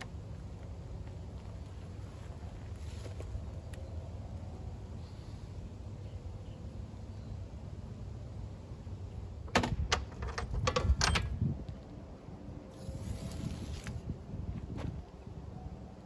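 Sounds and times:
tools clicking and knocking: 9.5s - 11.3s.

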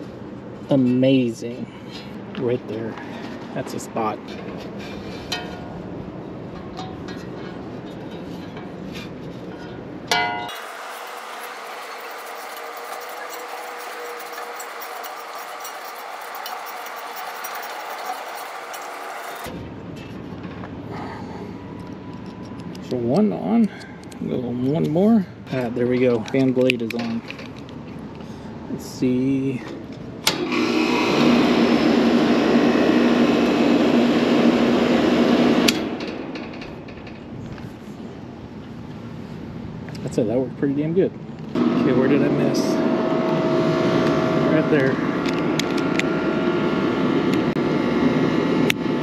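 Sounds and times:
fan air rushing: 0.0s - 49.0s
steady motor hum: 1.6s - 19.8s, 30.3s - 36.3s, 41.5s - 49.0s
allen key ticking and scraping: 10.5s - 19.5s.

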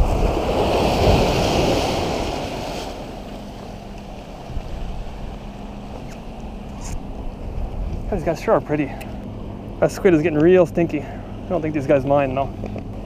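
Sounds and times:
surf washing over rocks: 0.0s - 9.1s
wind on microphone: 0.0s - 9.8s.

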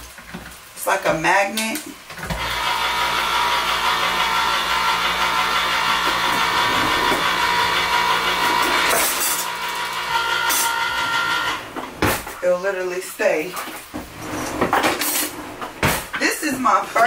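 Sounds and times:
electric can opener motor whining: 2.2s - 11.9s
can opener rattle: 3.6s - 11.6s.

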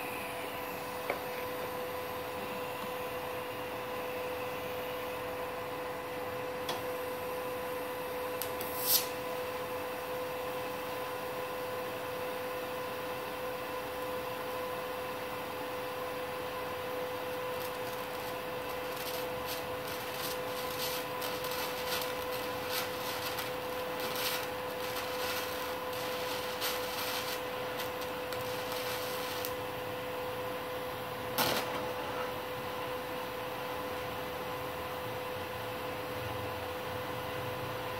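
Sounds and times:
welder humming: 0.0s - 11.2s, 13.7s - 32.5s
welding arc crackling: 8.4s - 9.2s, 16.0s - 30.0s, 31.3s - 31.9s.

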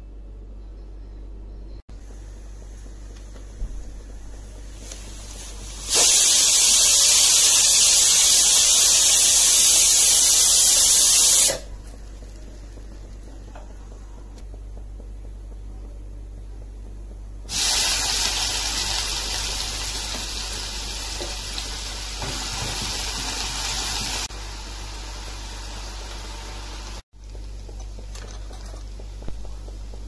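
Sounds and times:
pressure cooker steam hissing: 4.9s - 11.7s, 17.5s - 27.0s.

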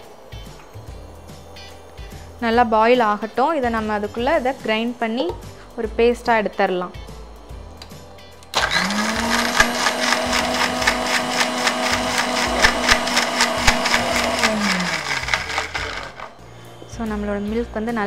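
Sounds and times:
mixer grinder motor whining: 8.5s - 16.4s.

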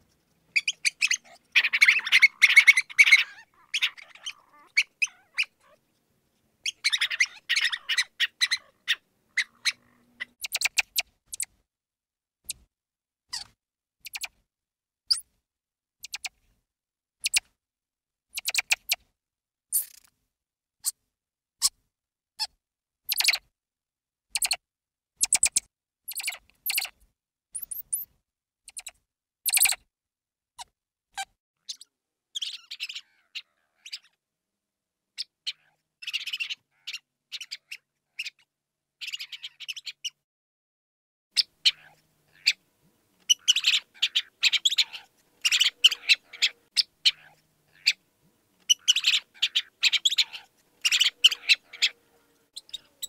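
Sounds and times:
mouse squeaking: 0.5s - 5.8s, 6.6s - 11.6s, 12.4s - 12.7s, 13.3s - 14.4s, 15.1s - 15.3s, 16.0s - 16.4s, 17.2s - 17.5s, 18.3s - 19.0s, 19.7s - 20.1s, 22.4s - 23.5s, 24.3s - 24.6s, 25.2s - 27.0s, 27.6s - 28.1s, 28.7s - 29.8s, 30.6s - 34.2s, 35.2s - 38.4s, 39.0s - 40.2s, 41.4s - 42.6s, 43.2s - 48.0s, 48.6s - 52.0s, 52.6s - 53.0s.

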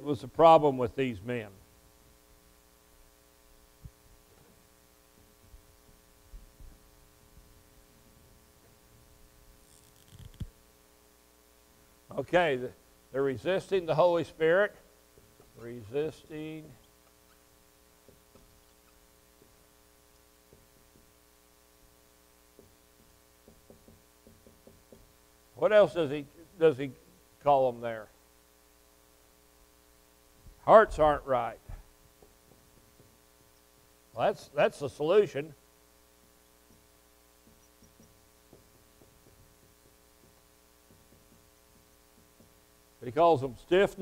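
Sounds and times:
steady electrical hum: 0.0s - 44.0s
marker tapping on whiteboard: 22.6s - 25.1s, 32.2s - 33.2s, 37.4s - 42.6s.

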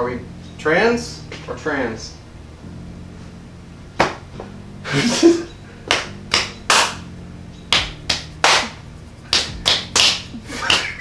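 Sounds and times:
fists slapping palms: 5.9s - 7.0s, 7.7s - 11.0s.

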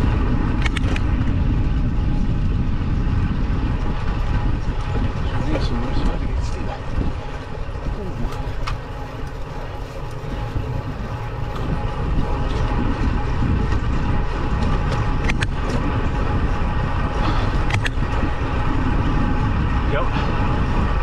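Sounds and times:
bike tyres rumbling on tarmac: 0.0s - 21.0s
wind buffeting microphone: 0.0s - 21.0s
sharp clicks: 0.6s - 1.1s.

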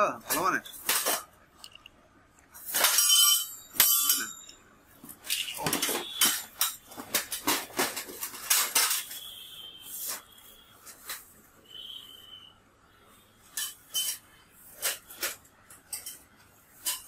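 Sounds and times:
metallic clatter with ring: 2.7s - 4.6s, 13.5s - 17.0s.

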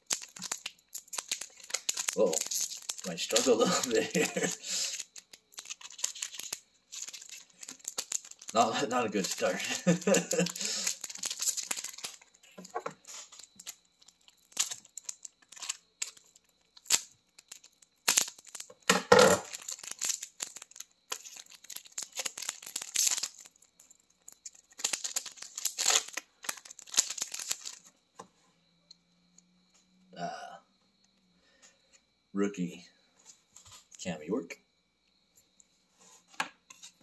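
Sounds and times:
wrapper ripping and rustling: 0.0s - 27.9s.

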